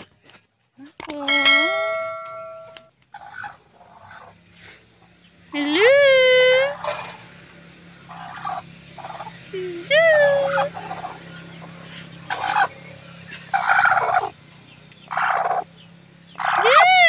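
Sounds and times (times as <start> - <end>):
hen harsh raspy calls: 6.6 - 9.5, 10.2 - 14.4, 15.0 - 17.0
hen squawks: 16.4 - 17.0.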